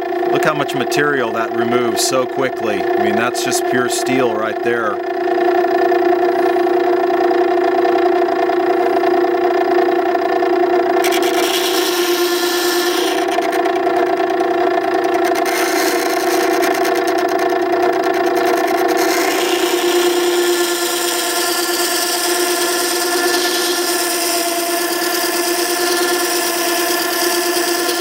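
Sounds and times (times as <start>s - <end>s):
sharpener motor humming: 0.0s - 28.0s
steel grinding on wet stone: 11.0s - 13.3s.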